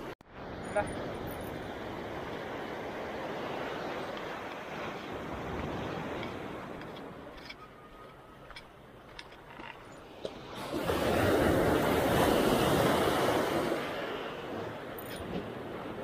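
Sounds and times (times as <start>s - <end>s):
waves breaking on rocks: 10.2s - 16.0s.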